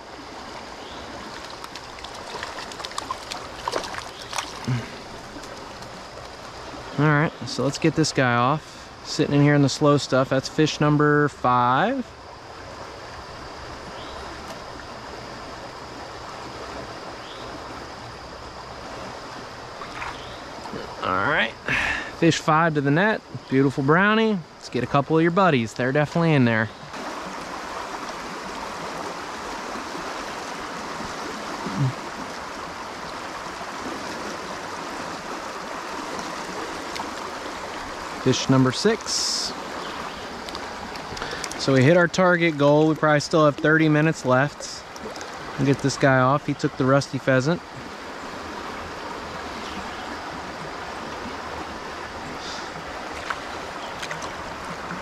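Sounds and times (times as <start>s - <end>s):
river rushing: 26.9s - 55.0s
brief vocal sound: 31.6s - 32.0s.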